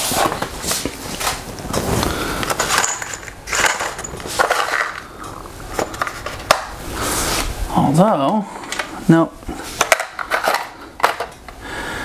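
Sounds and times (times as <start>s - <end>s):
metal screws clattering in plastic bins: 2.5s - 5.1s, 5.7s - 6.7s, 9.7s - 11.4s.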